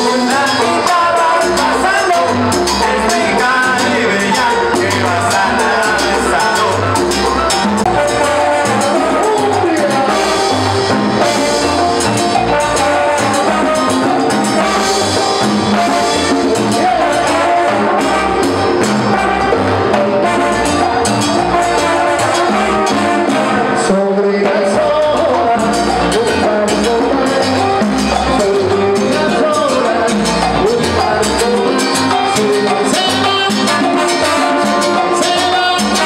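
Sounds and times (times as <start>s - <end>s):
salsa band with brass and percussion: 0.0s - 36.0s.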